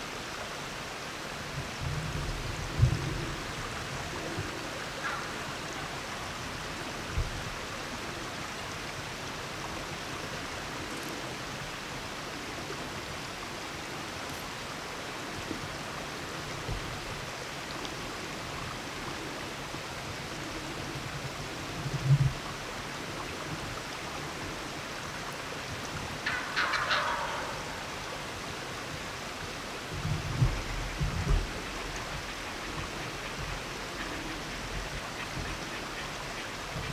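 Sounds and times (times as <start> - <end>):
turkey gobbling: 5.0 - 5.5, 26.2 - 28.1.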